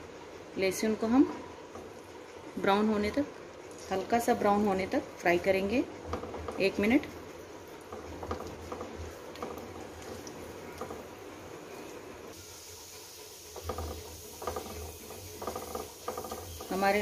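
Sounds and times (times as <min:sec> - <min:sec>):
garlic sizzling in oil: 0:06.5 - 0:17.0
spatula scraping a pan: 0:13.5 - 0:17.0.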